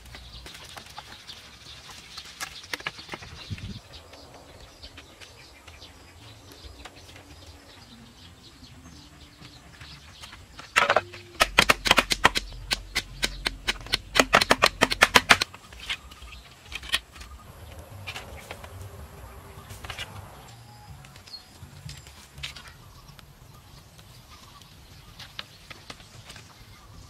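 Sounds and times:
sharp knocks of bamboo: 10.8 - 15.9.

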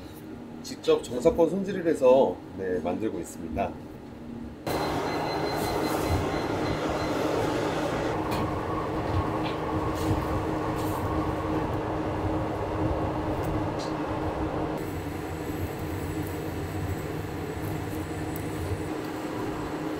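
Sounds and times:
pizza oven mechanical drone: 4.6 - 19.9.

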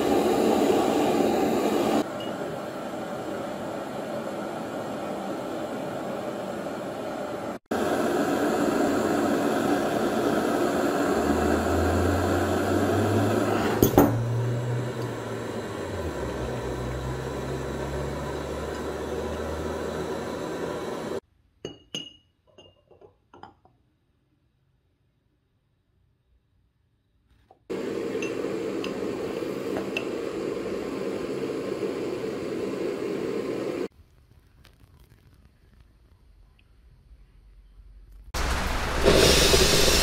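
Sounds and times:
whirring machine: 3.0 - 21.2.

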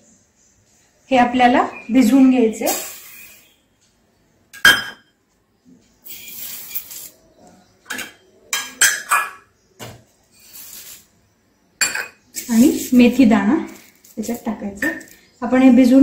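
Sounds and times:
steel bowls clinking: 11.8 - 15.2.

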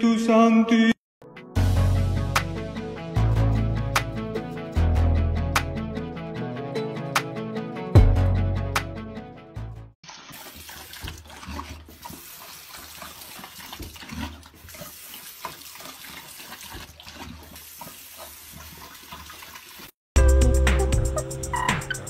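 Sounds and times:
dog drinking water: 10.1 - 19.9.

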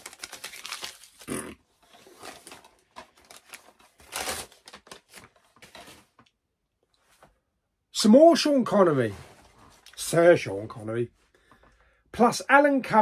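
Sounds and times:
paper crinkling and tearing: 0.0 - 6.2.

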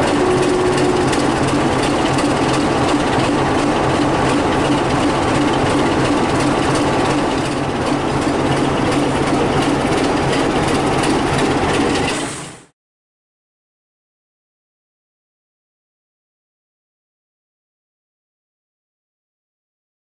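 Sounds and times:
wheels clicking on track: 0.0 - 12.6
diesel locomotive engine running: 0.0 - 12.7.

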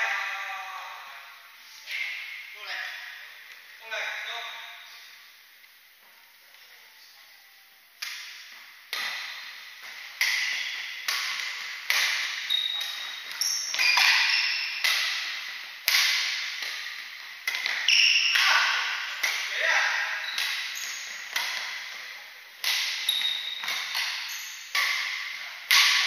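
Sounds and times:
rackets striking shuttlecock: 8.0 - 26.0
shoes squeaking on wooden court: 8.0 - 26.0.

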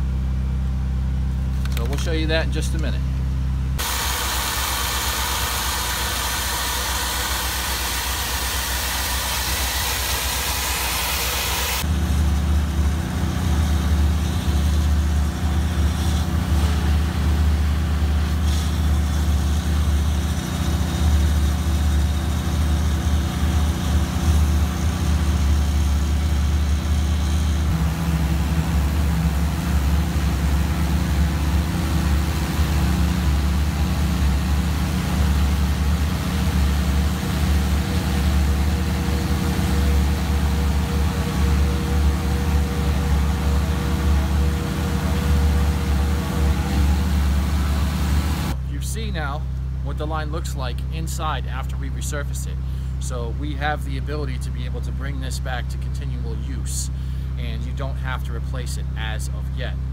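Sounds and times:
engine droning: 0.0 - 59.9
high-pressure water jet hissing: 3.8 - 11.8, 13.7 - 48.6.

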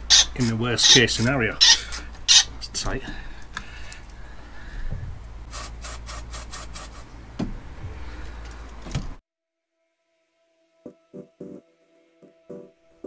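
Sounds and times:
hand tool rubbing and scraping: 0.0 - 2.8.

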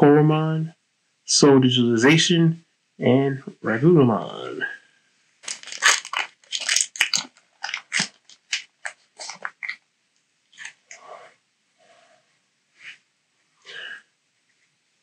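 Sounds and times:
cards rustling: 5.4 - 9.8, 10.5 - 10.9
foil pack crinkling: 5.4 - 9.8, 10.5 - 10.9.

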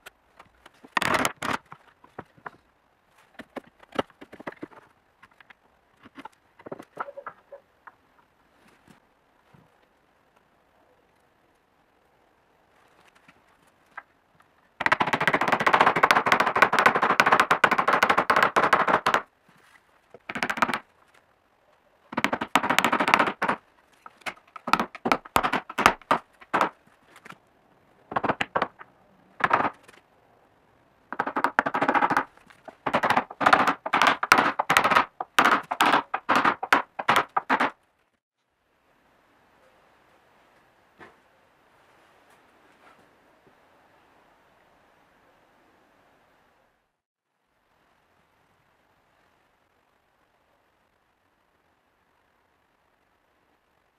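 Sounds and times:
chisel chopping wood: 22.1 - 26.8, 31.2 - 37.7.

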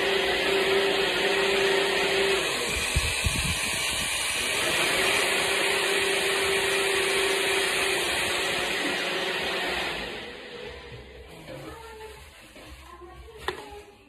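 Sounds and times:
electric drill whining into wood: 0.0 - 11.2.

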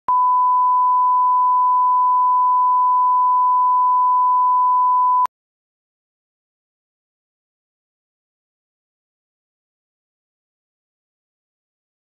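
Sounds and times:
steady test tone beep: 0.1 - 5.3.

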